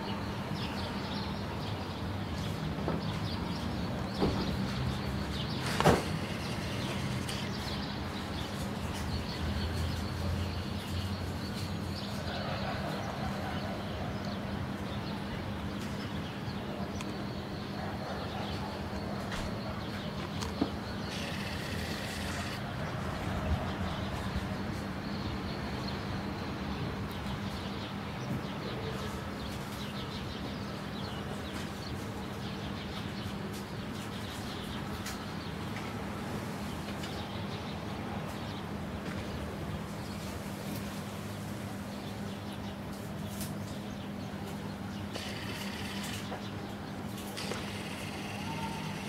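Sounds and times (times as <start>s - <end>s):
distant traffic hum: 0.0s - 49.0s
small birds chirping: 0.5s - 13.1s, 14.2s - 23.0s, 36.6s - 49.0s.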